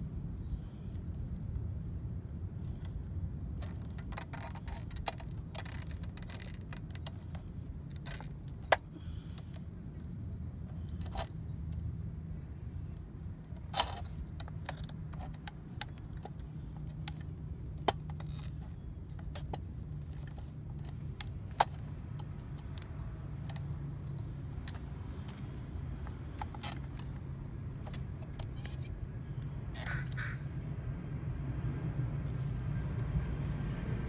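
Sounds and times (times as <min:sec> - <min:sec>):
steady low rumble: 0:00.0 - 0:34.0
plastic and metal parts clicking: 0:02.6 - 0:09.7, 0:12.8 - 0:30.2.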